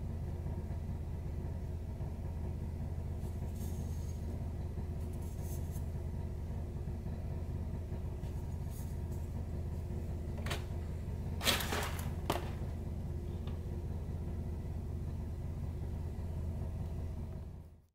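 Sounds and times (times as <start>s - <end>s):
low hum: 0.0s - 17.9s
knocks of bottle and box: 11.4s - 12.6s.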